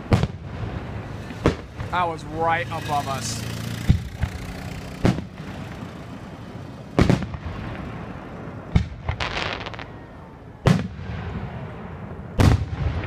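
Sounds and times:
firework booms: 0.0 - 2.2, 3.8 - 4.4, 5.0 - 5.8, 6.9 - 13.0
firework crackles: 0.0 - 13.0.

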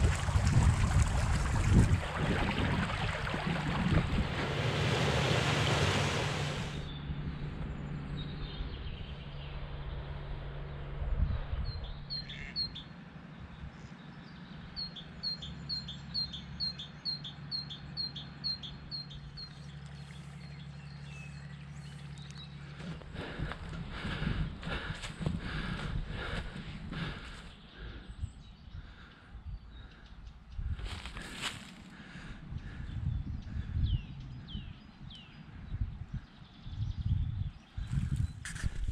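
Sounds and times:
stream rushing over stones: 0.0 - 6.9
low hum: 0.0 - 12.2
footsteps on dirt path: 21.8 - 27.6, 30.8 - 31.9.

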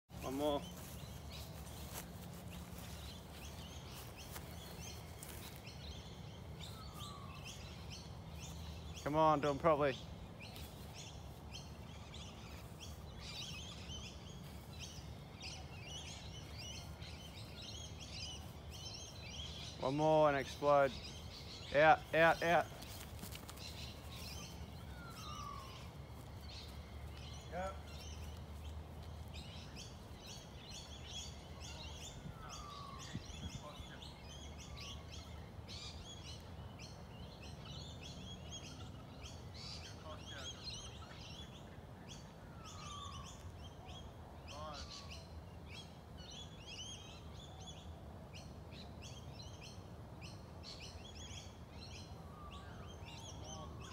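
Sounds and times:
birds chirping: 0.1 - 53.9.

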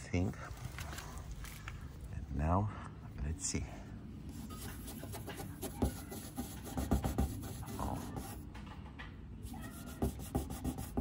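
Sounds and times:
cloth rubbing on car paint: 4.3 - 8.4.

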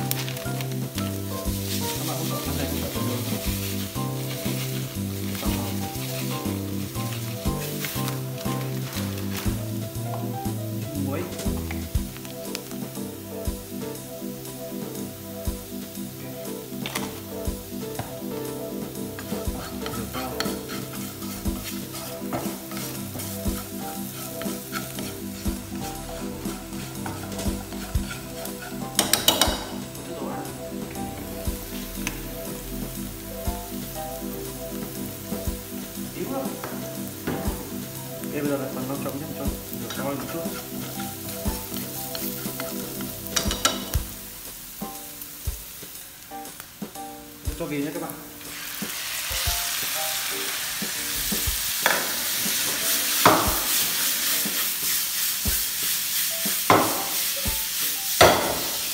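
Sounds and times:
chopsticks scraping and tapping pan: 0.0 - 10.3, 16.8 - 17.2, 19.2 - 30.0, 38.8 - 44.2
food sizzling in oil: 0.0 - 58.9.

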